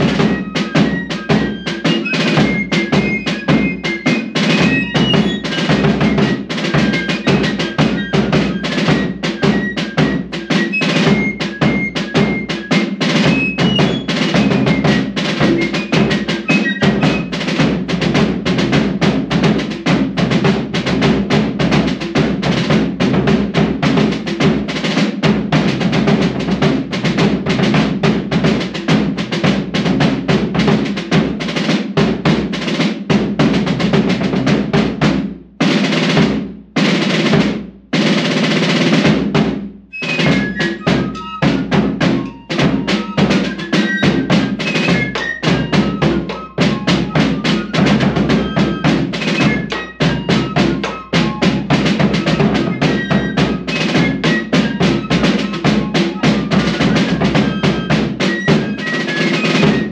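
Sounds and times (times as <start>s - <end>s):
fifes playing melody: 0.0s - 18.9s, 39.9s - 59.9s
snare drum rolls: 0.0s - 59.9s.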